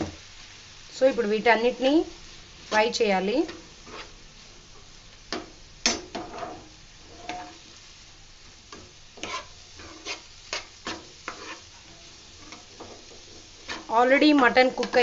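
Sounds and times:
faint sizzle of frying: 0.0s - 15.0s
spoon scraping frying pan: 2.7s - 4.2s, 5.3s - 7.8s, 8.7s - 15.0s.

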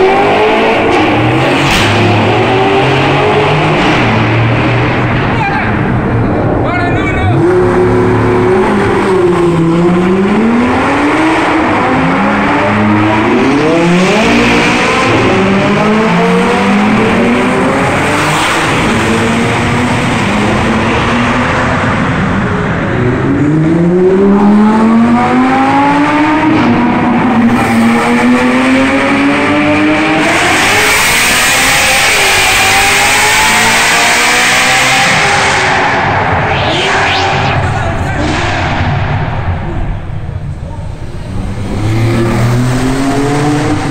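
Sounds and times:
car engine accelerating hard: 0.0s - 6.6s, 7.2s - 43.9s.

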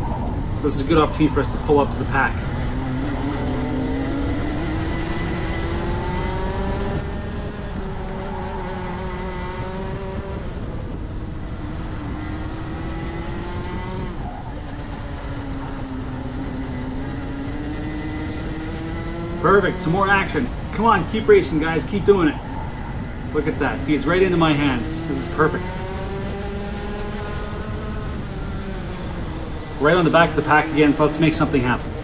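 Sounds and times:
kart engine revving: 0.0s - 32.0s
steady rushing noise: 0.0s - 32.0s.

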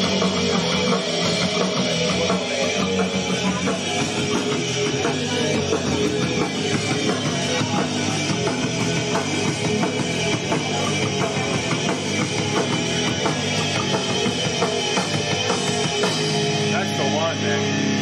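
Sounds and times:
rock band instrumental: 0.0s - 18.0s.

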